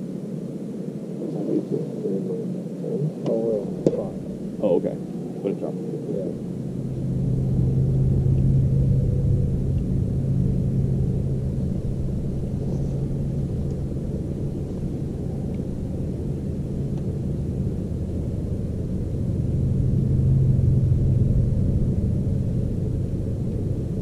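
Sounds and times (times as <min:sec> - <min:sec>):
electric trolling motor humming: 0:06.4 - 0:24.0.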